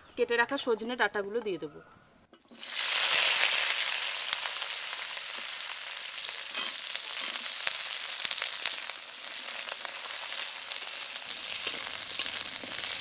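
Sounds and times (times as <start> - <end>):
oil crackling and popping: 2.5 - 13.0
vegetables sizzling in hot oil: 2.5 - 13.0.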